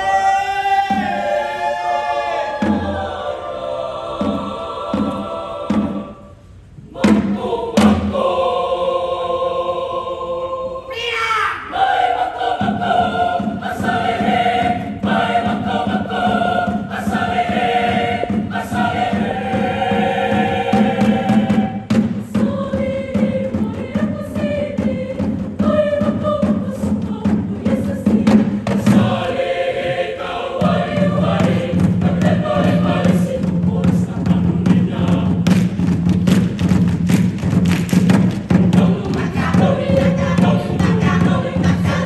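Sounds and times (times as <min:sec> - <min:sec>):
mixed choir singing: 0:00.0 - 0:11.0, 0:11.6 - 0:42.0
hand drum strikes: 0:31.3 - 0:42.0.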